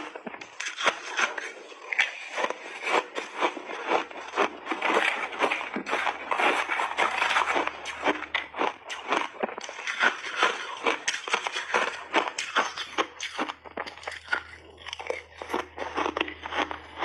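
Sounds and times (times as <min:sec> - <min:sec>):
chewing crunchy ice: 0:00.0 - 0:17.0.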